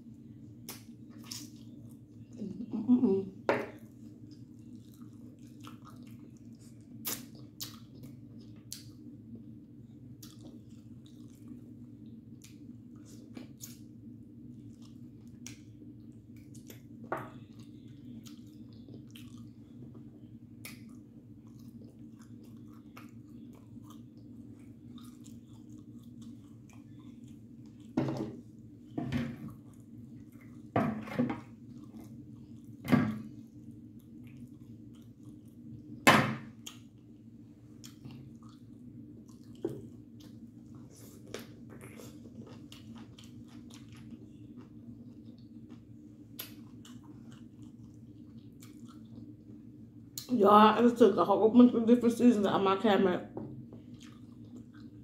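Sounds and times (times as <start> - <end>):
chewing and wet mouth sounds: 0.0 - 2.6, 3.7 - 30.7, 31.4 - 50.4, 53.6 - 55.0
steady low hum: 0.0 - 55.0.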